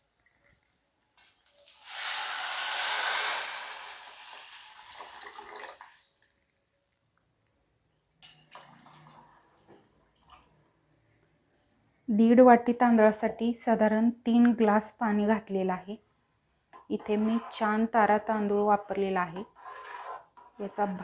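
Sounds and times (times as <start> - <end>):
water pouring into pot: 1.6 - 6.4.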